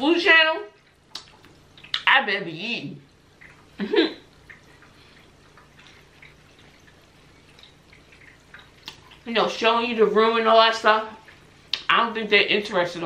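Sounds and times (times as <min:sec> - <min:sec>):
person chewing food: 0:04.4 - 0:09.2.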